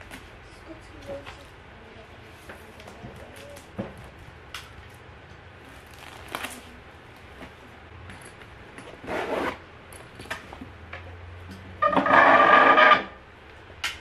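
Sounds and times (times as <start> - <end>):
backpack zipper pulled shut: 9.0 - 9.6.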